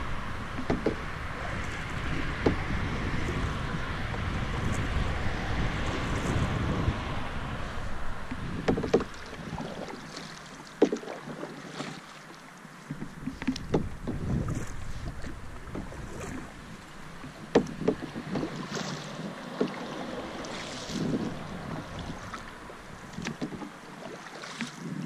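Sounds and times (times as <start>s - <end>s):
wind rumble on microphone: 0.0s - 10.2s, 12.9s - 25.0s
paddle splashes and drips: 0.0s - 25.0s
soft wash of water: 0.0s - 25.0s
sharp knocks on canoe: 0.5s - 1.1s, 2.1s - 3.3s, 8.3s - 10.0s, 10.8s - 11.1s, 12.9s - 16.5s, 17.2s - 22.4s, 23.1s - 23.7s.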